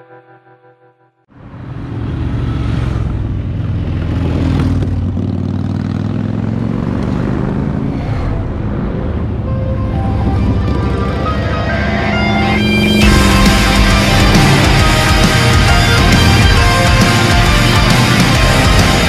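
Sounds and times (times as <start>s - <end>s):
motorcycles riding past: 1.4s - 9.4s
background music: 9.4s - 19.0s.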